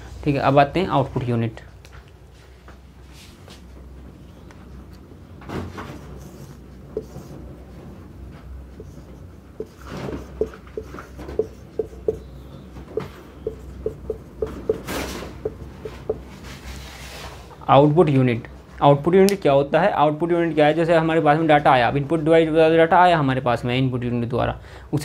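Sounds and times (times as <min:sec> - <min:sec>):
marker swishes: 0:05.7 - 0:07.3, 0:08.7 - 0:16.2
marker squeaking on whiteboard: 0:05.8 - 0:07.5, 0:08.7 - 0:16.2.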